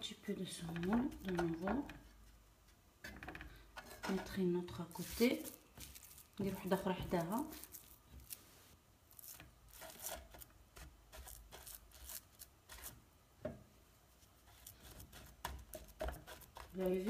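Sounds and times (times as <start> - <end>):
hands rustling dough: 3.8 - 13.1.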